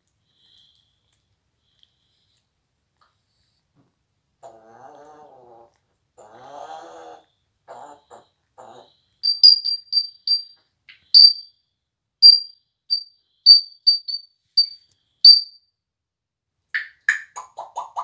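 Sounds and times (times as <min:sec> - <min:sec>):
parrot whistled chirps: 0:09.2 - 0:10.5.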